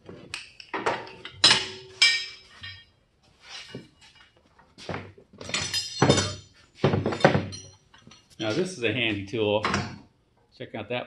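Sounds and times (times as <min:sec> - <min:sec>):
metal hand tools clanking: 0:01.0 - 0:02.9, 0:05.4 - 0:10.0.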